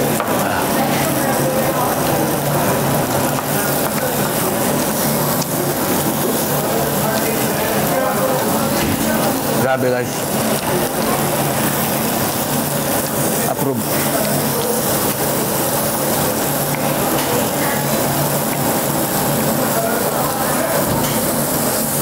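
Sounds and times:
beef sizzling on a grill: 0:00.0 - 0:22.0
voices: 0:00.0 - 0:22.0.

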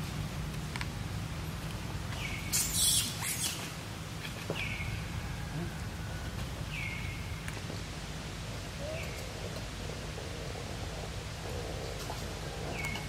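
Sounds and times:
steady low rumble: 0:03.7 - 0:13.0.

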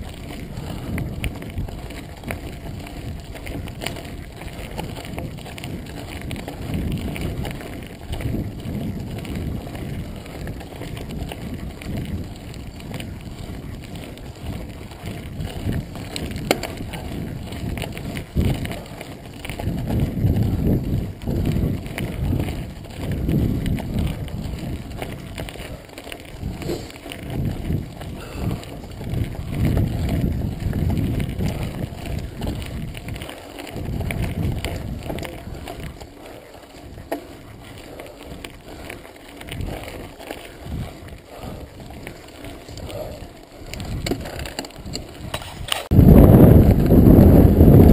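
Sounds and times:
tyres on loose gravel: 0:00.0 - 0:47.9
wind on microphone: 0:00.0 - 0:47.9
bike knocking over bumps: 0:15.6 - 0:17.8.

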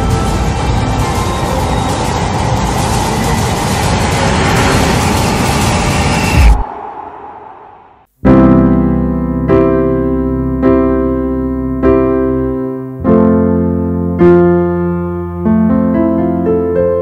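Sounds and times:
noisy rush: 0:00.0 - 0:08.1
slow piano chords: 0:08.2 - 0:17.0.

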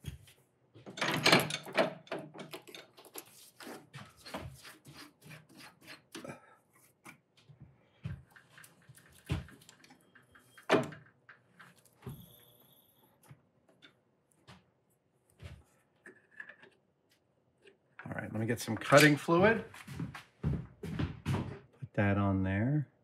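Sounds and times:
metal tools clinking and knocking: 0:00.9 - 0:03.0, 0:18.8 - 0:19.2.

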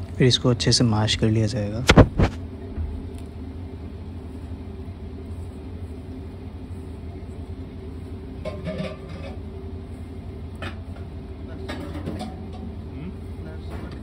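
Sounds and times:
faint hum: 0:00.0 - 0:14.0.

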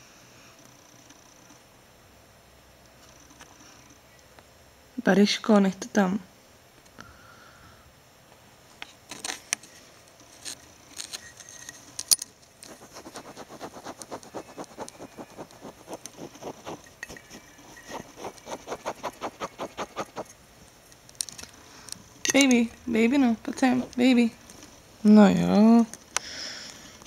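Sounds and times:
rats scratching in bedding: 0:12.6 - 0:20.4, 0:23.5 - 0:24.8.

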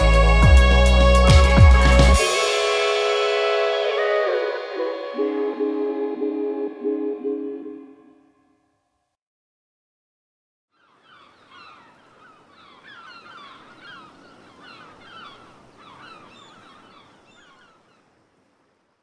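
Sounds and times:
water birds calling: 0:10.7 - 0:19.0
waves washing onto beach: 0:11.0 - 0:19.0.

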